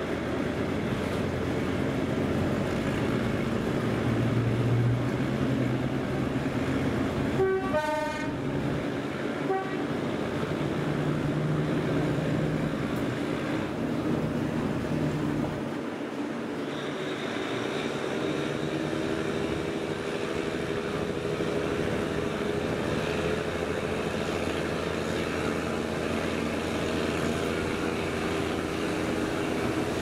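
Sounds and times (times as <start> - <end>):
diesel locomotive engine: 0.0 - 30.0
train horn: 7.3 - 8.5, 9.4 - 10.1.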